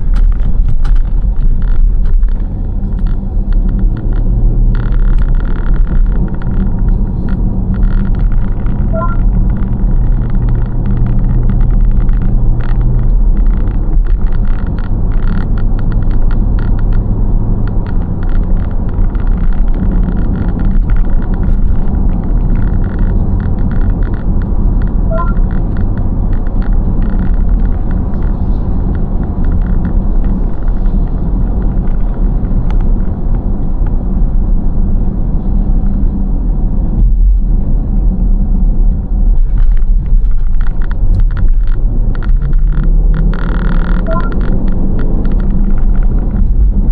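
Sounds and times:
car engine and tyre rumble: 0:00.0 - 0:46.9
short electronic beep: 0:08.9 - 0:09.3, 0:25.0 - 0:25.5, 0:44.0 - 0:44.4.

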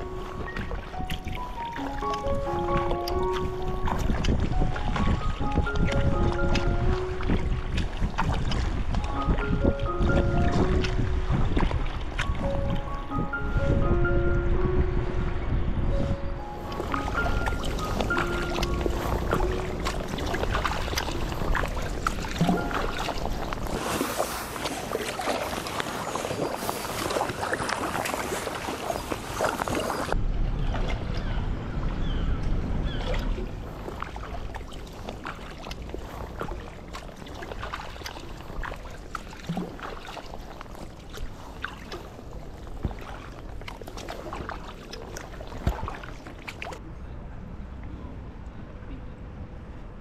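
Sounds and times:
kayak paddle splashes: 0:00.0 - 0:13.6, 0:16.6 - 0:31.4, 0:32.8 - 0:46.8
water splashing and lapping: 0:00.0 - 0:46.9.

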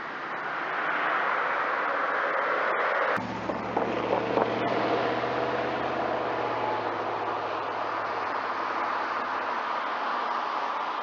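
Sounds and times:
distant car engine: 0:03.2 - 0:10.9.

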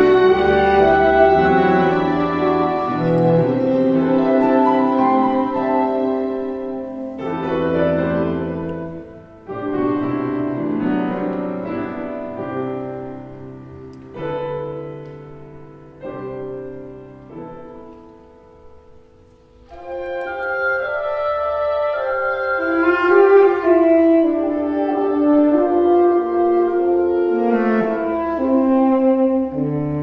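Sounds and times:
chamber ensemble playing held chords: 0:00.0 - 0:14.2.

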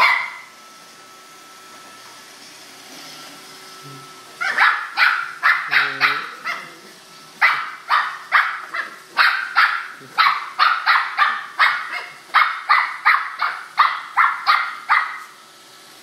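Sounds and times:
dog barking rapidly: 0:00.0 - 0:00.4, 0:04.4 - 0:06.7, 0:07.4 - 0:15.3
robot vacuum hum: 0:00.0 - 0:16.0.

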